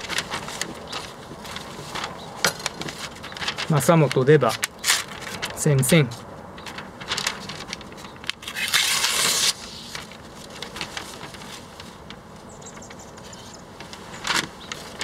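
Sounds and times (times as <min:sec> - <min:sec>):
paper rustling: 0:00.0 - 0:15.0
knife slicing newspaper: 0:08.4 - 0:10.0.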